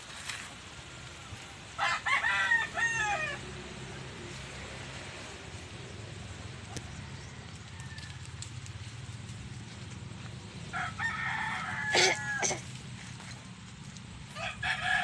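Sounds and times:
rooster crowing: 1.8 - 3.4, 6.7 - 8.5, 10.6 - 12.7, 14.3 - 15.0.

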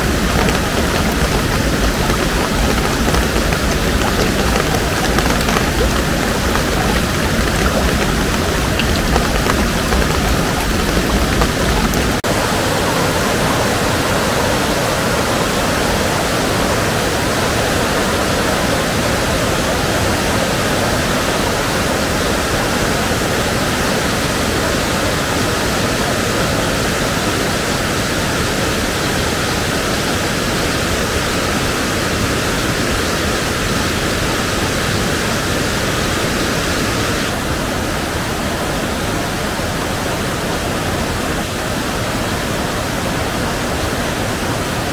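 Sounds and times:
river water rushing: 0.0 - 12.9.

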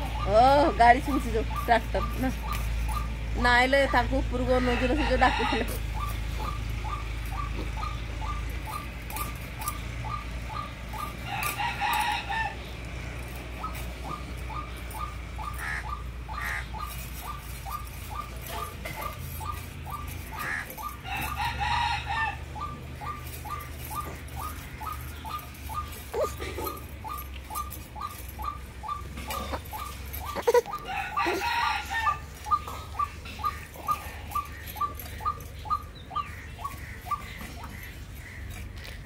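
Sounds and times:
short evenly spaced ticks: 0.0 - 4.5, 5.4 - 39.0
rooster crowing: 4.6 - 6.1, 11.0 - 12.7, 20.4 - 22.7, 30.7 - 34.4.

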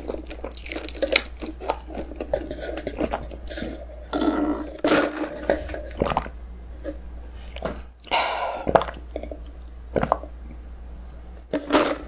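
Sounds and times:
mouth and swallowing clicks: 7.6 - 10.3.

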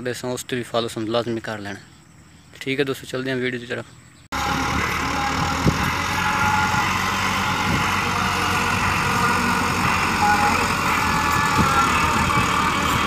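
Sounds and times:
tractor diesel engine running: 4.3 - 13.0.

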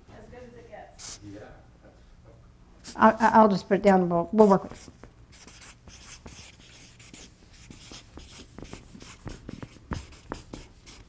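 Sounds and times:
marker scratching on paper: 1.0 - 1.2, 2.8 - 3.3, 4.4 - 11.0.

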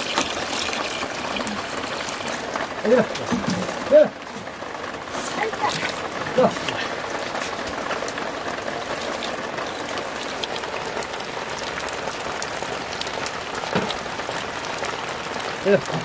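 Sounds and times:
steady rain hiss: 0.0 - 16.0
sharp raindrop ticks: 4.7 - 16.0.

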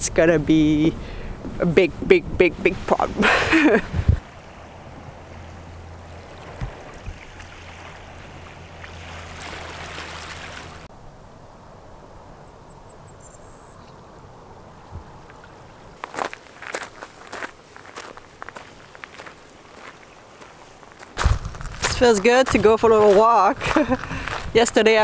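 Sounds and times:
water lapping: 2.6 - 10.9.

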